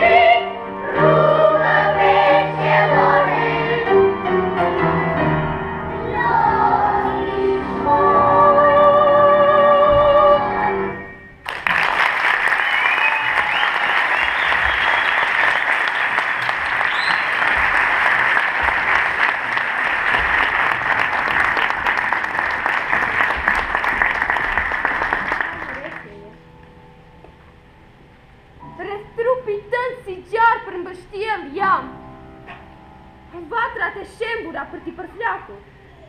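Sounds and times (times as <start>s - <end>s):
children singing: 0.0s - 4.0s, 6.0s - 10.4s
audience applause: 11.4s - 26.1s.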